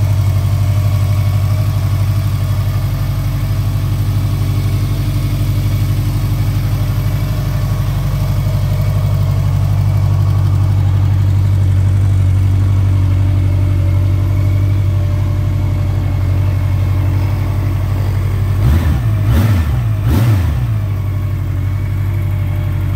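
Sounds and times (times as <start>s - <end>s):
motorcycle engine idling: 0.0s - 22.9s
engine revving: 17.2s - 21.2s.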